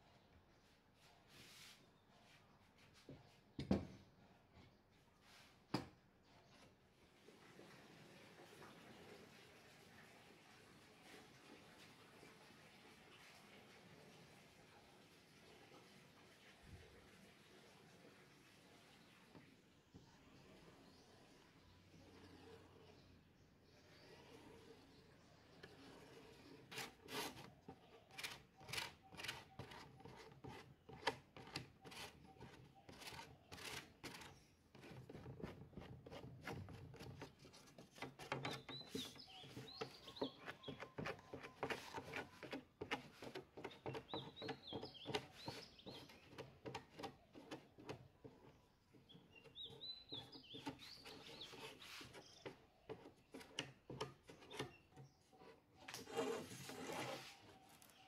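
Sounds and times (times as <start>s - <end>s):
faint bird chirping: 18.1s - 58.0s
spreader scraping glue on wood: 21.9s - 58.0s.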